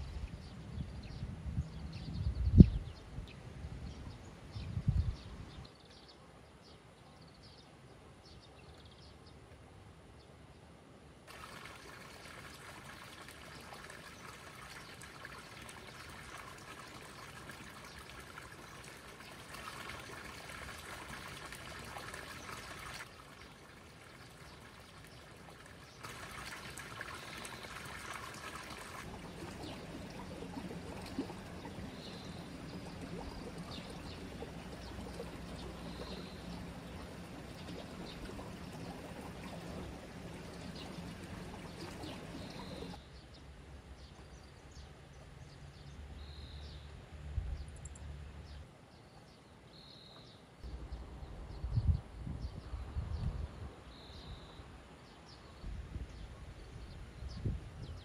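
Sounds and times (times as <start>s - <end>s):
water running in small stream: 11.3s - 43.2s.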